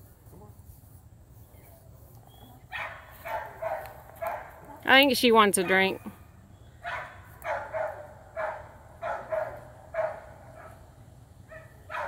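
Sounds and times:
dog barking: 2.7s - 4.6s, 6.8s - 10.8s, 11.5s - 12.0s.

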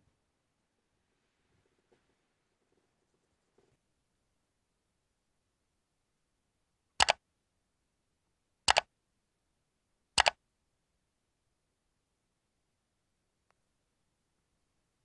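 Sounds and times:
mouse double click: 7.0s - 7.2s, 8.7s - 8.9s, 10.2s - 10.4s.

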